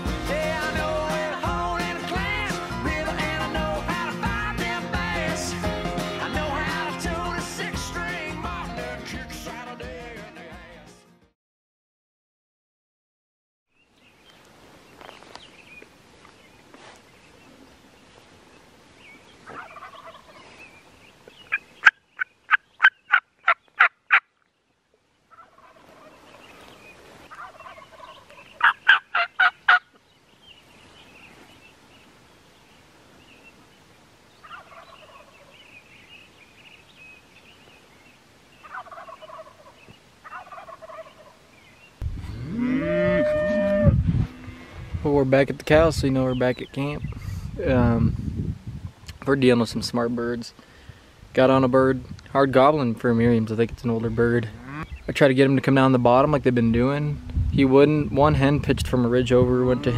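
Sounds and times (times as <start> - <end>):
distant turkeys gobbling: 19.4 - 20.4, 21.4 - 24.3, 25.3 - 26.5, 27.3 - 30.0, 34.4 - 35.6, 38.6 - 41.5
cow mooing: 42.2 - 45.0, 54.5 - 54.9, 59.6 - 59.9.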